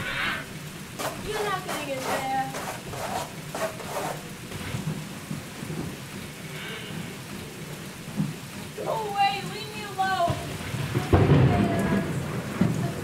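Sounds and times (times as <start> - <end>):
steady rain: 0.0 - 13.0
low rumble of thunder: 4.4 - 13.0.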